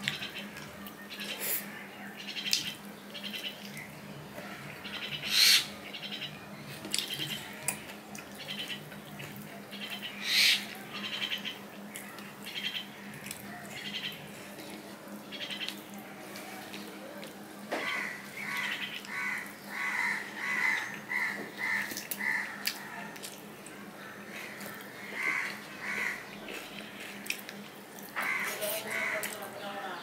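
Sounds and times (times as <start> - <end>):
wet chewing and lip-smacking: 21.9 - 23.8, 26.4 - 28.2.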